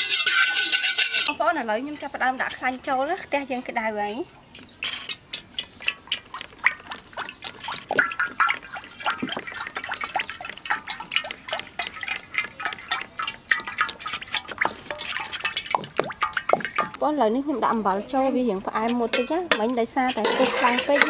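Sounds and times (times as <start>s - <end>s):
oil pouring into a wok: 5.9s - 17.0s.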